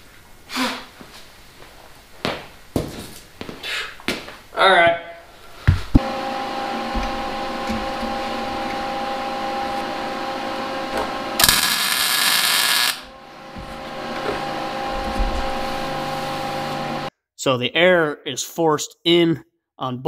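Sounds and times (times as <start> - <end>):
welder crackling hiss: 11.4 - 13.1.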